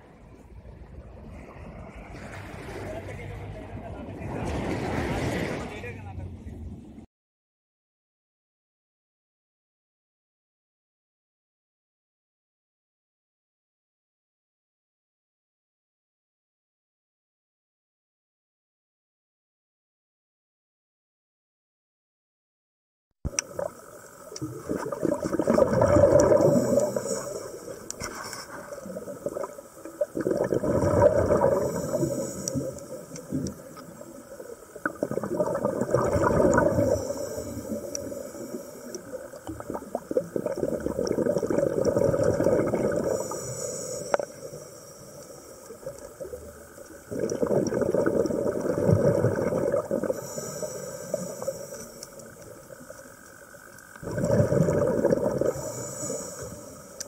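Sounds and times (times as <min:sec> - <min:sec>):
gurgling bubble bursts underwater: 0:23.3 - 0:28.0, 0:28.6 - 0:43.4, 0:45.7 - 0:50.5, 0:54.0 - 0:55.9
faint hiss of inhalation: 0:26.4 - 0:28.8, 0:31.6 - 0:33.3, 0:36.7 - 0:39.2, 0:43.0 - 0:45.8, 0:50.1 - 0:52.4, 0:55.4 - 0:57.0.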